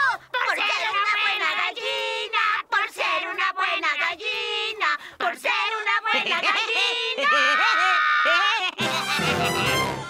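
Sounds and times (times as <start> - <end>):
high-pitched cartoon voices: 0.0 - 1.7, 5.6 - 9.9
cartoon music: 8.8 - 10.0.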